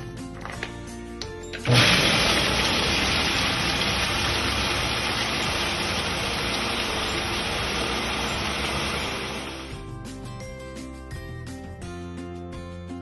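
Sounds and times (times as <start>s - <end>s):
blender grinding nuts: 1.6s - 9.8s.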